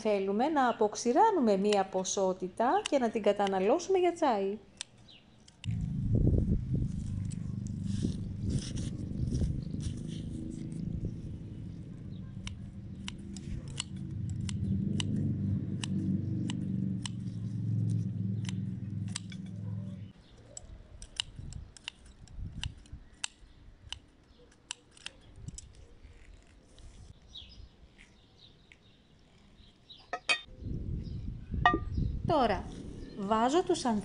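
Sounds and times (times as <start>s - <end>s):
scissors snipping stems: 1.6s - 4.1s, 4.7s - 6.0s, 6.8s - 26.9s
low steady hum: 5.6s - 20.1s.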